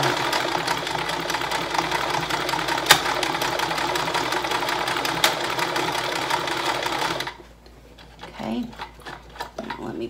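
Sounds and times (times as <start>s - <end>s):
sewing machine running: 0.0s - 7.4s.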